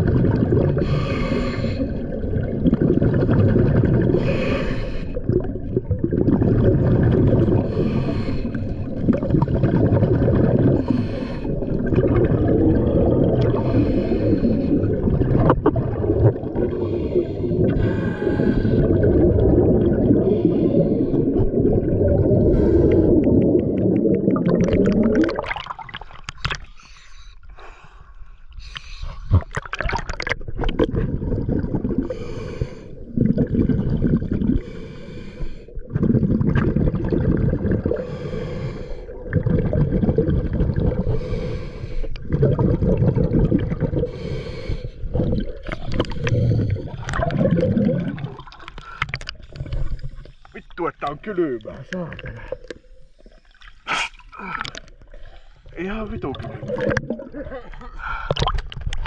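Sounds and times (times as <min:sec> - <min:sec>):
underwater exhaust bubbles rumbling: 0:00.0 - 0:26.8, 0:28.6 - 0:59.0
clicks and crackles: 0:58.3 - 0:59.0.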